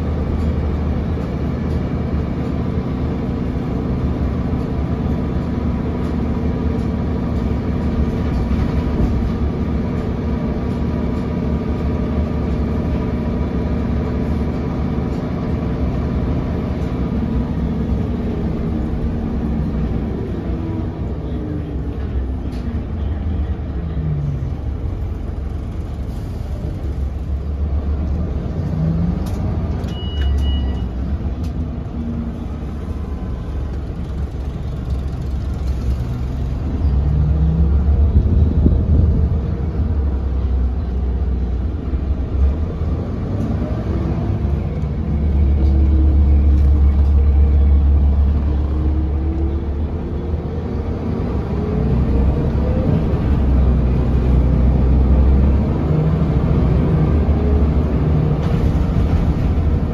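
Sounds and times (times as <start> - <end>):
bus diesel engine droning: 0.0 - 59.9
short high beep: 29.9 - 31.0.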